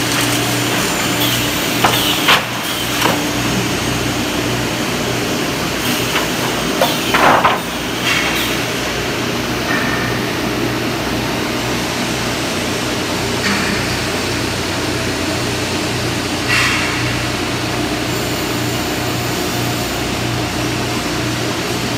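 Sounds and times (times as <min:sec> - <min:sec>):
machine drone and hum: 0:00.0 - 0:21.9
sharp mechanical knocks: 0:00.1 - 0:03.6, 0:05.8 - 0:08.6.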